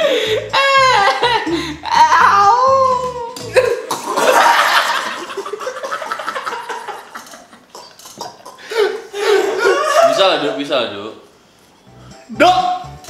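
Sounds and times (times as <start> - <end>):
men laughing: 3.5 - 10.6.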